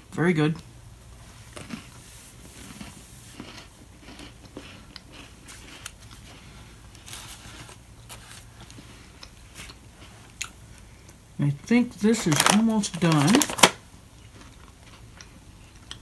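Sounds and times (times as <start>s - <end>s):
person chewing crunchy cookies: 0.4s - 11.4s, 12.0s - 16.0s.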